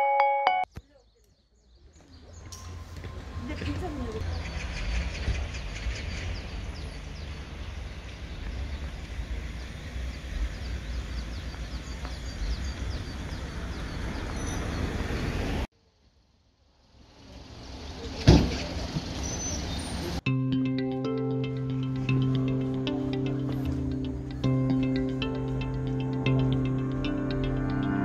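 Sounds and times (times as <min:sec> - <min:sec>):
small birds chirping: 0:00.7 - 0:15.5, 0:17.8 - 0:20.1.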